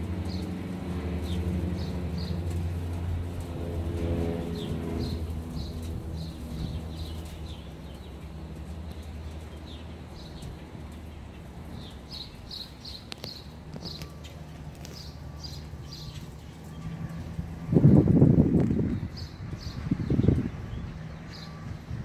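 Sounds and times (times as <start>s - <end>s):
steady low hum: 0.0s - 22.0s
small birds chirping: 0.2s - 3.0s, 4.5s - 22.0s
microphone handling rumble: 17.6s - 20.9s.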